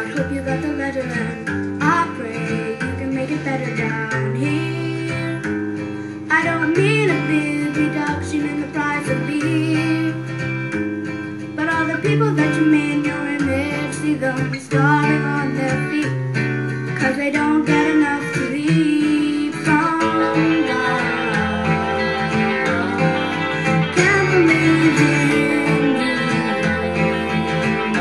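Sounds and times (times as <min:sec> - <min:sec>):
plucked and strummed guitar: 0:00.0 - 0:28.0
bass line: 0:18.6 - 0:28.0.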